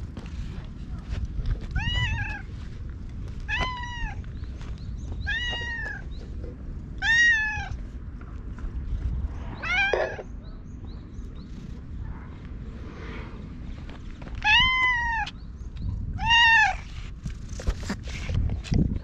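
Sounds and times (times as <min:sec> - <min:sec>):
cat meowing: 0:01.7 - 0:02.5, 0:03.5 - 0:04.2, 0:05.2 - 0:06.0, 0:07.0 - 0:07.8, 0:09.6 - 0:10.3, 0:14.4 - 0:15.3.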